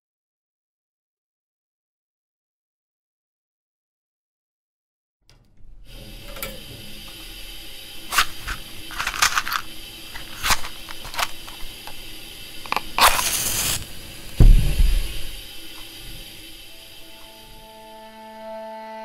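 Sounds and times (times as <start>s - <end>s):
steady hiss: 5.8s - 18.8s
crackles and sharp clicks: 8.1s - 12.0s, 12.6s - 14.4s.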